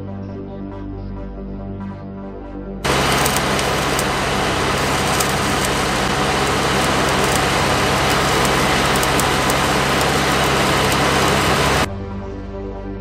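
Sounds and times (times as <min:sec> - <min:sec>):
welding arc crackling and sizzling: 0:02.8 - 0:11.9.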